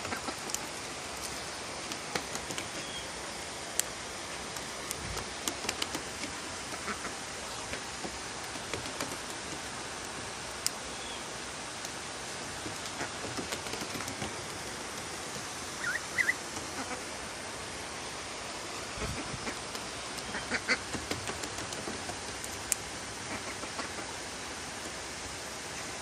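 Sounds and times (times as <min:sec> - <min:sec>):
steady background hiss: 0:00.0 - 0:26.0
ducks quacking: 0:06.8 - 0:07.1, 0:20.3 - 0:20.8.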